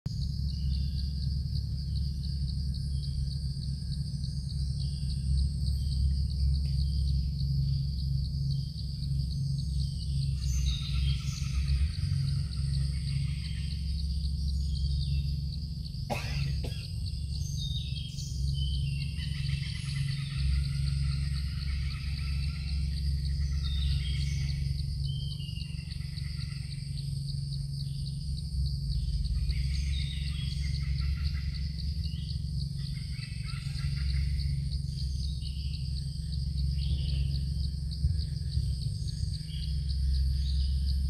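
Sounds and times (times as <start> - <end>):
insects trilling: 0.1 - 41.0
low rumble: 0.1 - 41.0
birds chirping: 4.7 - 27.1.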